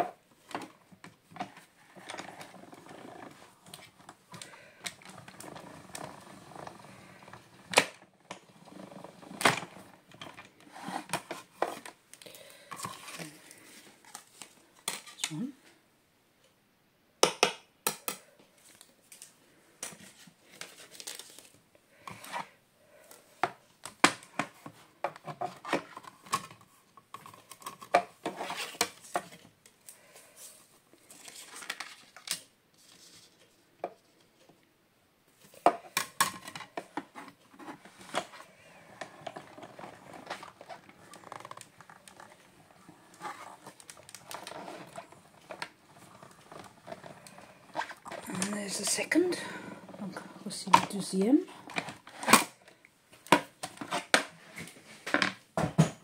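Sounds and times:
paper rustling: 18.6s - 21.6s, 28.2s - 33.5s.

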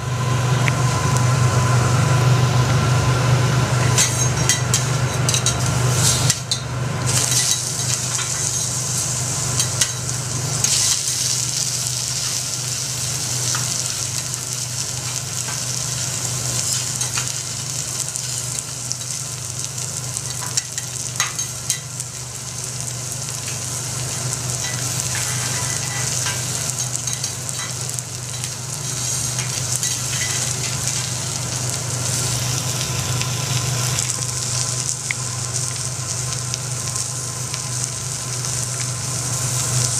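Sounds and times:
food sizzling on a griddle: 3.8s - 39.9s.

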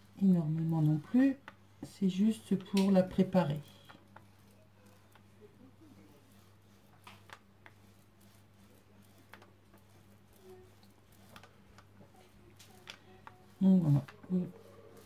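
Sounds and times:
brayer roller clicks: 6.3s - 15.0s.

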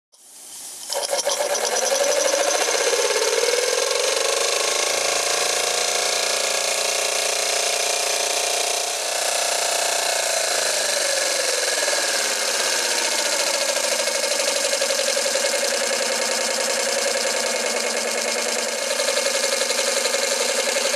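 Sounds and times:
model steam engine running fast: 0.7s - 20.9s.

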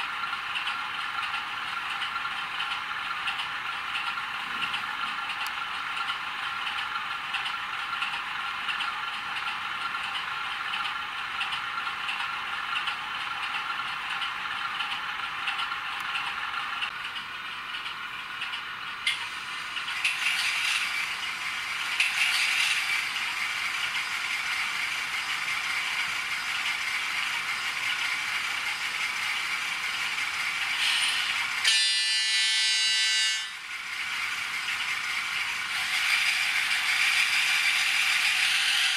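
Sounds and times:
model diesel engine idling: 0.0s - 22.0s, 22.8s - 31.7s, 33.6s - 37.9s
diesel locomotive starting up: 0.0s - 38.9s
locomotive horn blast: 31.6s - 33.6s.

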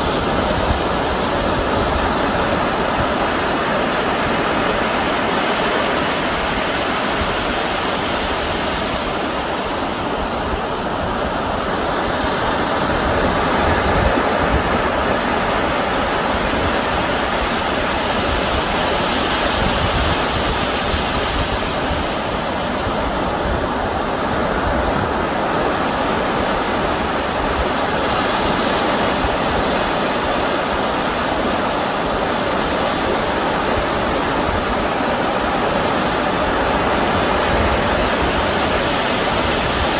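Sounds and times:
sea surf on shore: 0.0s - 39.9s.

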